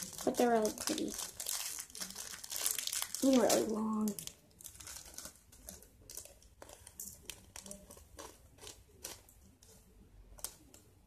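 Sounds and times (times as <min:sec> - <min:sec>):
plastic packet crinkling: 0:00.0 - 0:10.9.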